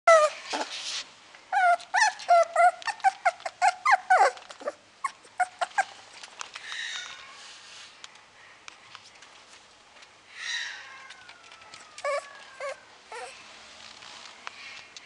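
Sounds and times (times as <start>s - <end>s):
puppy whining: 0.1s - 0.8s, 1.5s - 6.3s, 10.8s - 13.5s
puppy yelp: 0.1s - 0.8s, 1.5s - 6.0s, 11.7s - 13.4s.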